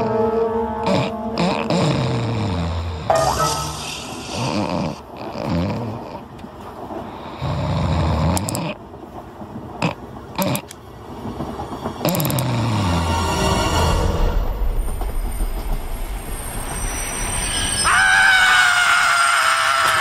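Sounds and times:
cartoon animal snoring: 0.8 - 3.1, 3.9 - 6.3, 7.3 - 8.8, 9.8 - 10.7, 12.0 - 13.2.

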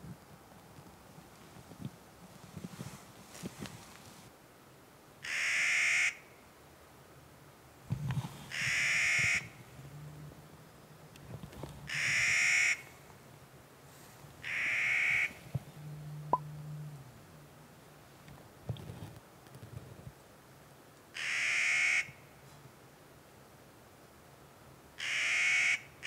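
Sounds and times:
bird harsh drawn-out calls: 5.2 - 6.2, 14.4 - 15.4.

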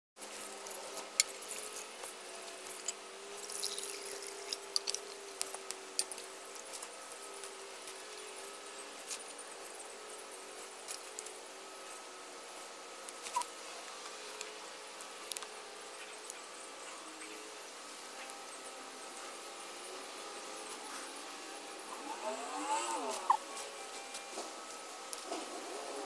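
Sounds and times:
sticks crackling in a stove: 0.6 - 8.1
water poured into a metal pot: 3.5 - 4.6.

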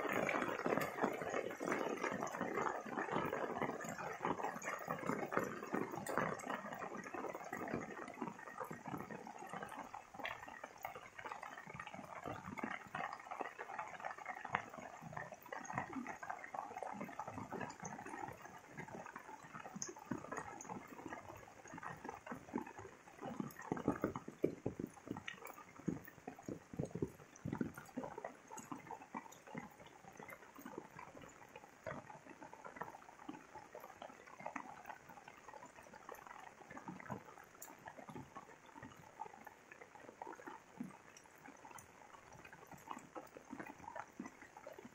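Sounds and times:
rain falling on leaves: 0.0 - 10.5.

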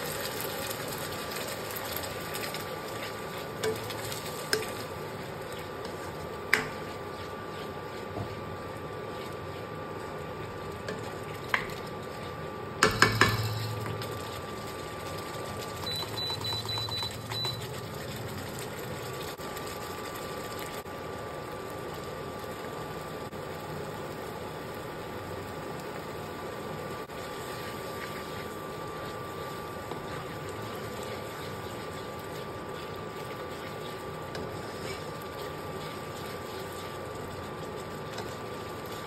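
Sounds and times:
steady hum: 1.7 - 21.2.

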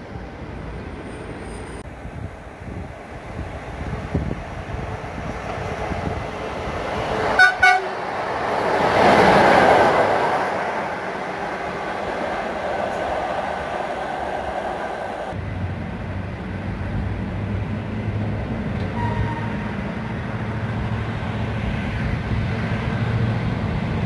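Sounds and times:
train rushing past: 0.3 - 24.0
locomotive horn blasts: 7.4 - 8.0, 19.0 - 19.7.

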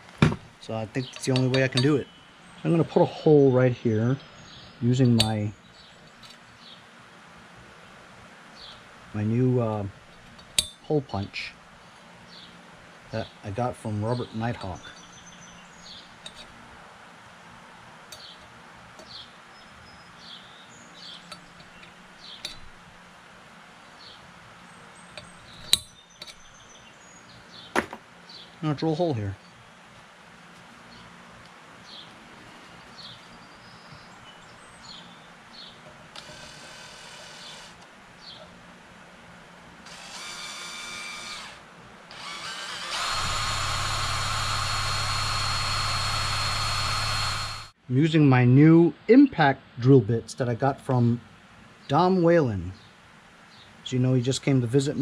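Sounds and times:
cordless drill boring into metal: 36.2 - 37.8, 39.9 - 47.8.

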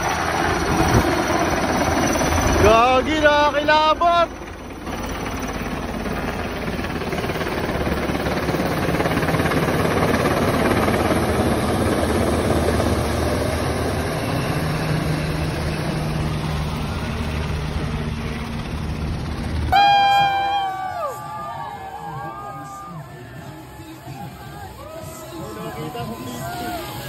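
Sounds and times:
helicopter flying overhead: 0.0 - 27.0.

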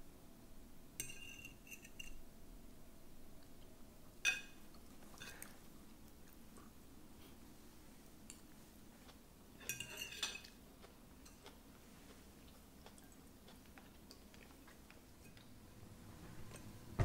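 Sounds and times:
cutlery clinking on plates: 1.0 - 2.2, 4.2 - 4.6, 9.6 - 10.6.

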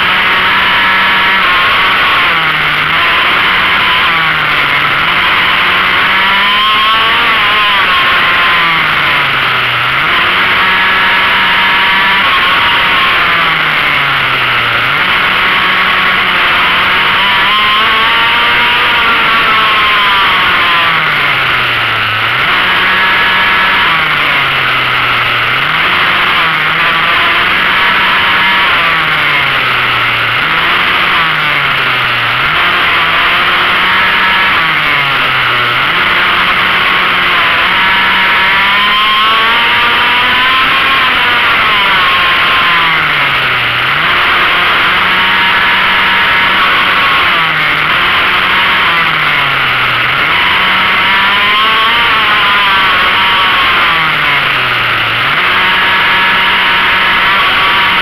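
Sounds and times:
racing motorcycle engine revving: 0.0 - 58.0.

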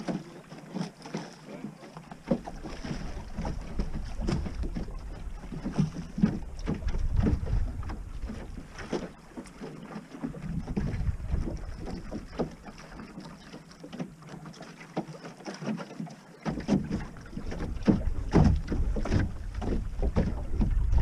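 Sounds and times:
water splashing against hull: 0.0 - 21.0
wind buffeting microphone: 2.9 - 8.8, 10.2 - 12.3, 16.8 - 21.0.

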